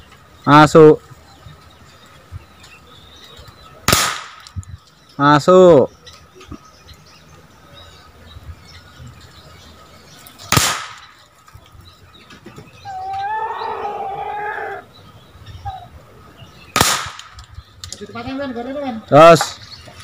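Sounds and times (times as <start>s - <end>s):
air pistol shots: 3.9s - 4.5s, 10.5s - 11.1s, 16.7s - 17.5s
long pitched call: 12.9s - 14.8s.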